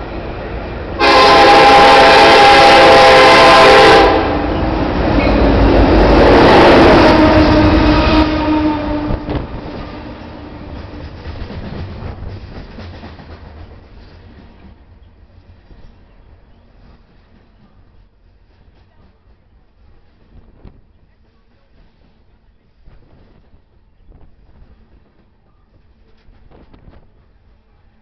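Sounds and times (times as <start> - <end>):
locomotive rumbling past: 0.0 - 28.0
loud locomotive horn blast: 1.0 - 10.9
train wheels clicking over rail joints: 9.2 - 27.3.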